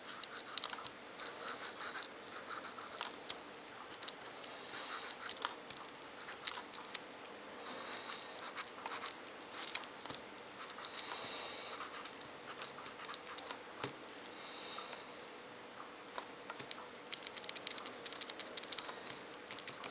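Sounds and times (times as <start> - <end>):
marker scratching on paper: 0.0 - 3.1, 8.4 - 9.7.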